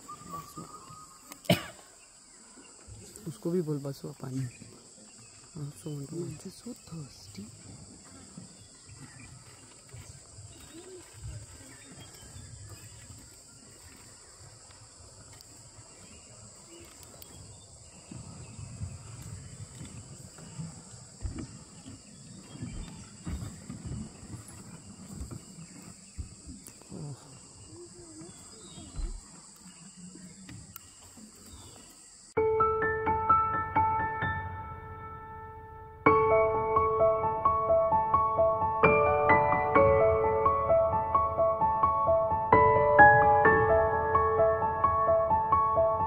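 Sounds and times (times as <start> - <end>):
insects droning: 0.0 - 46.0
soft thumps: 18.0 - 26.7.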